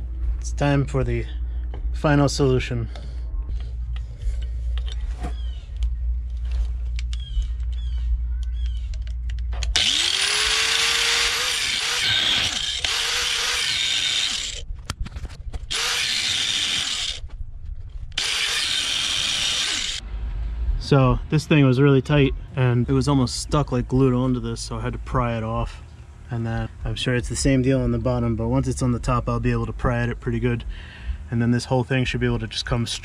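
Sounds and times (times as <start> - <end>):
low steady hum: 0.0 - 33.0
small clicks: 5.7 - 10.1
power tool grinding metal: 9.8 - 14.6, 15.7 - 17.2, 18.2 - 20.0.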